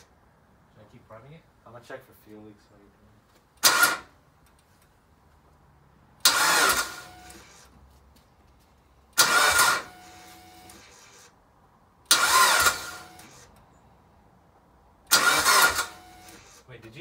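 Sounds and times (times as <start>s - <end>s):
starter motor cranking: 3.6s - 4.1s, 6.2s - 7.7s, 9.2s - 11.2s, 12.1s - 13.5s, 15.1s - 16.7s.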